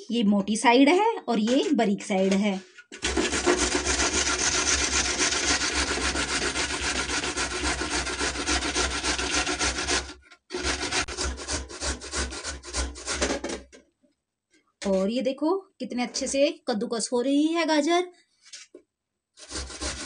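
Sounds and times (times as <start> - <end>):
carrot grating on box grater: 1.6 - 13.7, 19.4 - 20.0.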